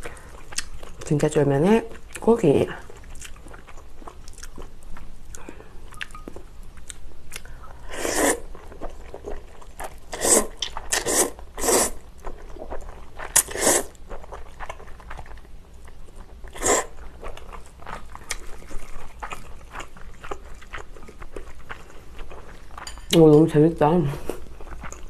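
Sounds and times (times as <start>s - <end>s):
chewing: 0.0s - 1.1s, 1.9s - 7.6s, 8.4s - 23.1s, 24.3s - 25.0s
noodles slurping: 10.0s - 12.0s, 13.3s - 14.0s.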